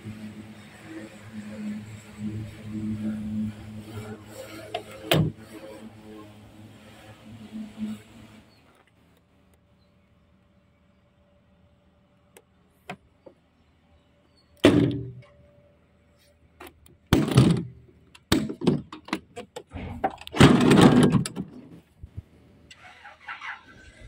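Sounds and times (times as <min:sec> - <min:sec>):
knocks thuds and rattles: 0:17.1 - 0:19.1, 0:19.8 - 0:21.7.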